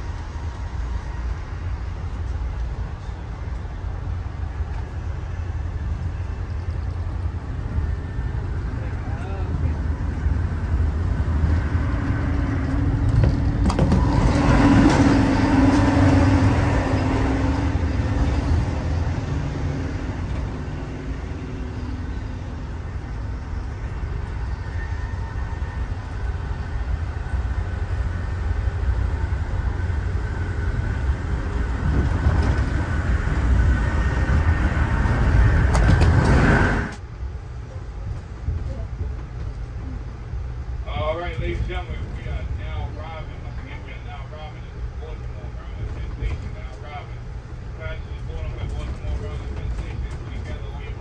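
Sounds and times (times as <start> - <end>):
train wheels rumbling on rails: 0.0 - 51.0.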